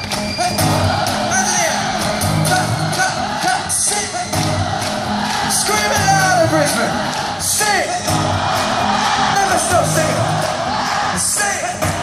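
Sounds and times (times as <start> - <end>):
crowd whooping and shouting: 0.0 - 12.0
voices singing: 0.3 - 12.0.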